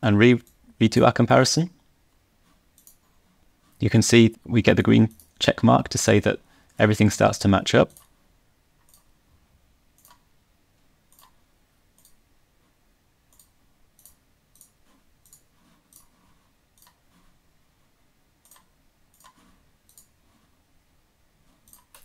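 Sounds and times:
computer mouse clicks: 2.7s - 3.1s, 5.1s - 5.4s, 7.9s - 8.1s, 8.8s - 9.1s, 9.9s - 10.3s, 11.1s - 12.2s, 13.3s - 17.3s, 18.4s - 20.4s, 21.6s - 22.0s.

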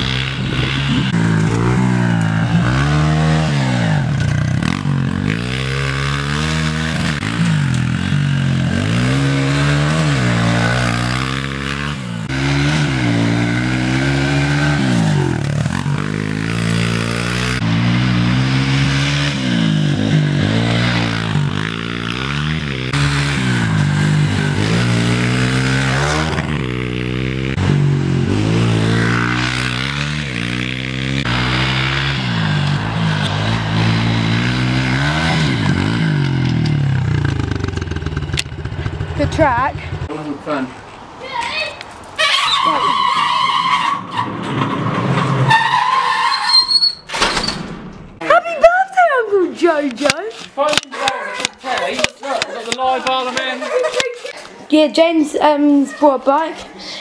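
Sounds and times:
motorbike engine revving: 0.0s - 40.3s.

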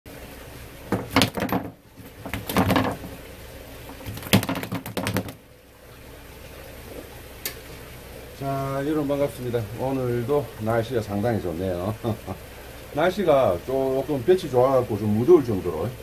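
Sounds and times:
fish slapping and clattering: 0.9s - 5.4s.

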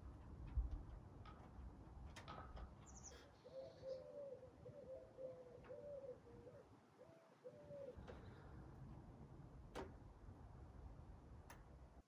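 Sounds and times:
pigeon cooing: 3.4s - 8.0s.

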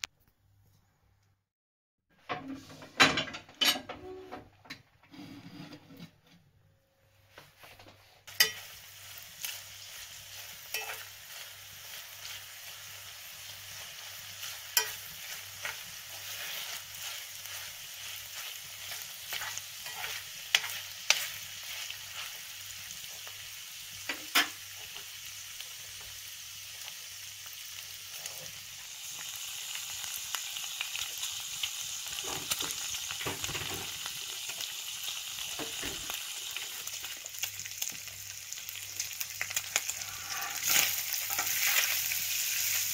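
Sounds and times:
metal spoon scraping a pan: 8.3s - 12.6s, 13.6s - 22.4s, 39.8s - 42.1s
bacon sizzling in a frying pan: 8.3s - 42.9s.

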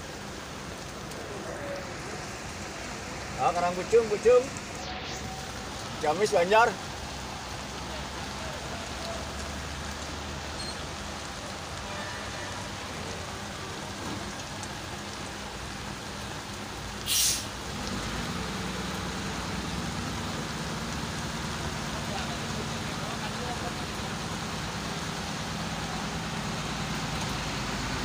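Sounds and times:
heavy rain on flooded ground: 0.0s - 28.0s
short loud hiss: 17.0s - 17.5s.

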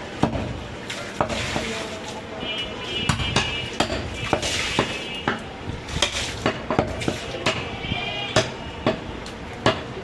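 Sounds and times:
cleaver chopping meat on wood: 0.2s - 0.6s, 3.1s - 7.7s, 8.3s - 10.0s.

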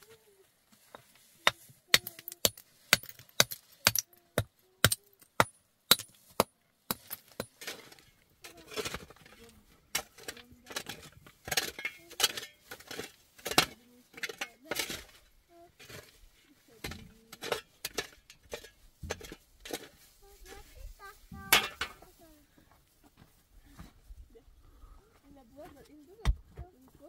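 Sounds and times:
shovel digging into stony ground: 1.4s - 4.2s, 4.8s - 15.2s
hammer chipping stone slabs: 1.9s - 7.7s.

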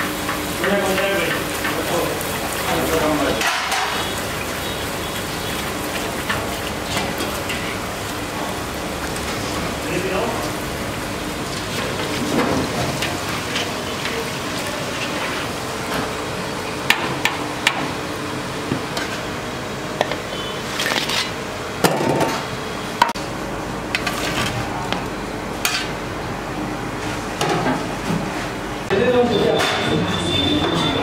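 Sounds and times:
metal utensils clinking on pans: 2.6s - 4.1s.

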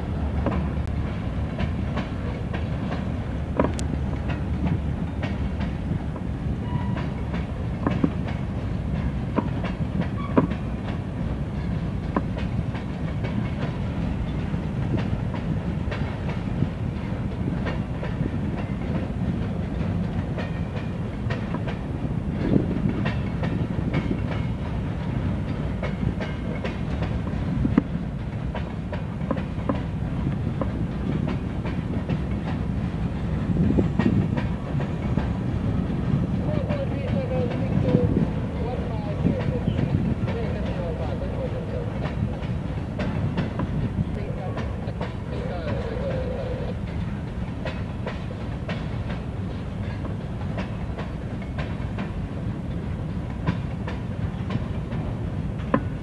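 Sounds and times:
freight train rumbling past: 0.0s - 56.0s
wheels clanking over rail joints: 0.0s - 56.0s
faint train squeals: 6.6s - 7.4s, 10.0s - 10.8s, 32.7s - 42.7s, 44.0s - 47.9s.

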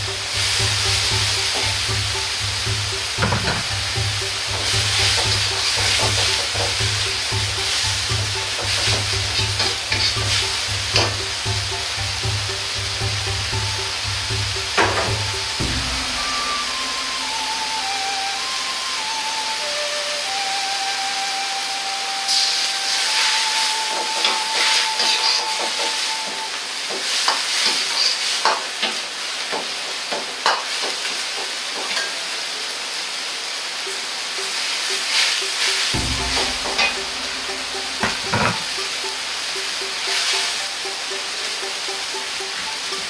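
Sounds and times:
metal ladle scraping wok: 0.0s - 18.6s, 24.0s - 26.3s
low thumps: 0.0s - 18.9s, 36.0s - 40.0s
food sizzling in a wok: 0.0s - 43.0s.

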